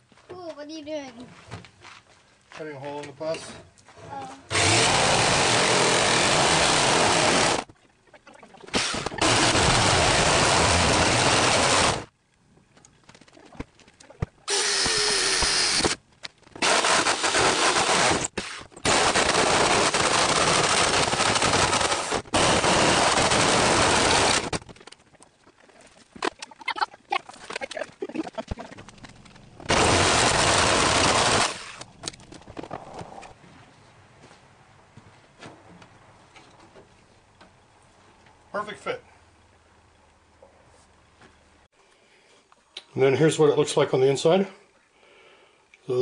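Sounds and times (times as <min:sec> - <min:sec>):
jigsaw cutting sheet metal: 0:04.5 - 0:07.7, 0:08.8 - 0:12.1, 0:14.5 - 0:16.0, 0:16.6 - 0:24.6, 0:29.7 - 0:31.8.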